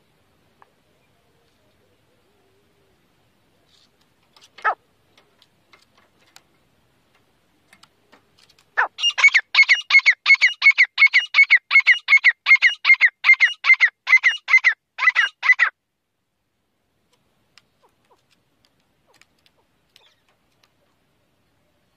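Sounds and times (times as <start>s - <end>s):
francolin calling: 8.8s - 15.7s.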